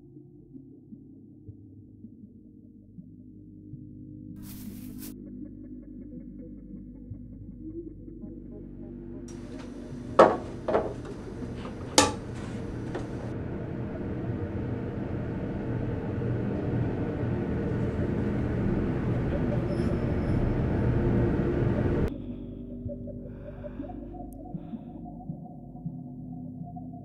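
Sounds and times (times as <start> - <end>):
crockery clinking in a sink: 9.3 - 13.3
low rumbling noise: 9.3 - 25.1.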